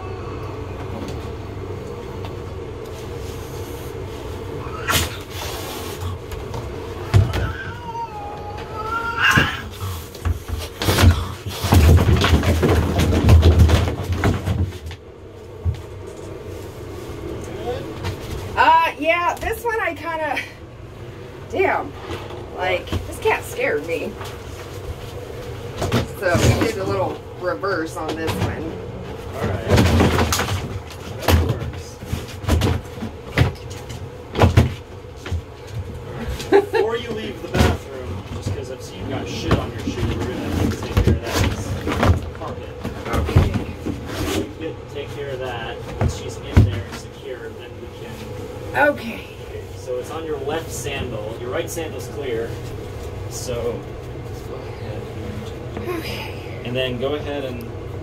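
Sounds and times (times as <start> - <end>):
knocks and thumps: 10.2 - 15.0.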